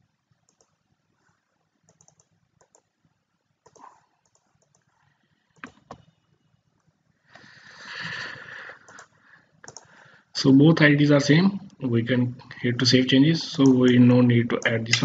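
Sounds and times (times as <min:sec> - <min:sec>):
keyboard typing: 0:00.4 - 0:00.8, 0:01.8 - 0:03.0, 0:03.6 - 0:05.0, 0:05.6 - 0:06.1, 0:08.7 - 0:10.0, 0:13.5 - 0:15.0
mouse clicks: 0:01.8 - 0:02.9, 0:08.9 - 0:09.9.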